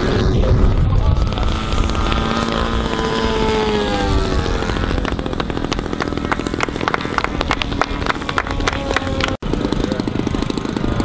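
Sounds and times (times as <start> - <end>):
model airplane engine passing: 0.0 - 11.0
sharp claps: 5.0 - 9.4.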